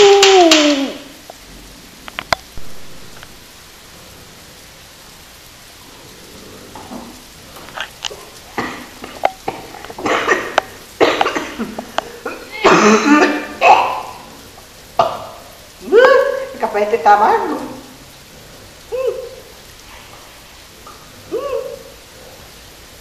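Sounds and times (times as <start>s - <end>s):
faint room hiss: 0.0s - 23.0s
woman coughing and spluttering: 8.5s - 14.3s.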